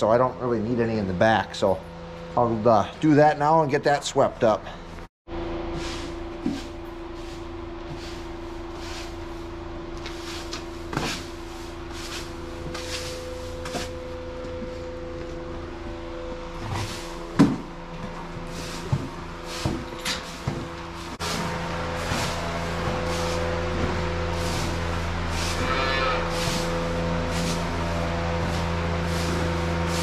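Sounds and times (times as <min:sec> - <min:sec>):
steady mechanical hum: 0:00.0 - 0:30.0
push broom sweeping concrete: 0:05.6 - 0:14.9, 0:16.6 - 0:30.0.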